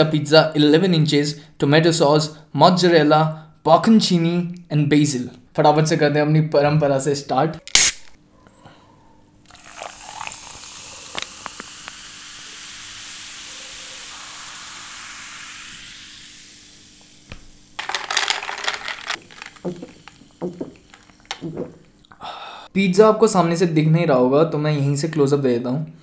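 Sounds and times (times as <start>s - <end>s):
cola fizzing in a glass: 9.5s - 17.2s, 17.8s - 21.8s.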